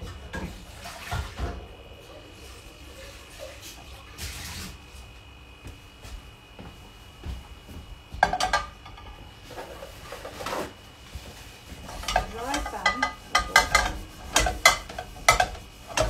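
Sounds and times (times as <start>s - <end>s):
metal pots clanking: 8.2s - 10.4s, 11.8s - 16.0s
pans scraping on grates: 8.2s - 16.0s.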